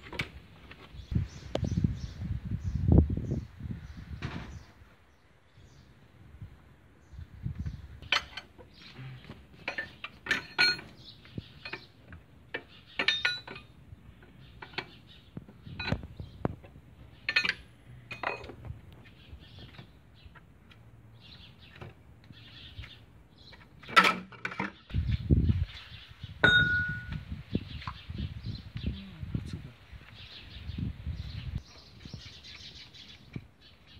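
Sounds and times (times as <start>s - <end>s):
wrench and metal parts clinking: 9.6s - 11.0s, 12.5s - 13.8s, 17.2s - 18.6s.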